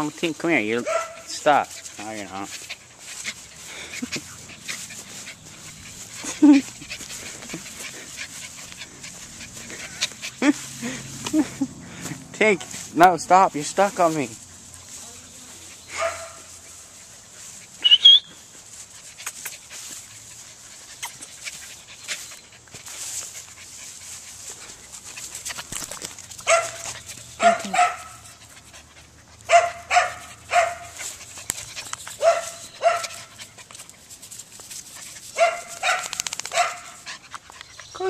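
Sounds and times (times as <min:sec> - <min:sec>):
dog yelp: 0:00.8 - 0:01.3, 0:26.4 - 0:28.2, 0:29.5 - 0:30.9, 0:32.2 - 0:33.2, 0:35.4 - 0:37.0
small dog barking: 0:00.8 - 0:01.3, 0:16.0 - 0:16.5, 0:26.4 - 0:28.2, 0:29.5 - 0:31.0, 0:32.2 - 0:33.2, 0:35.4 - 0:37.0.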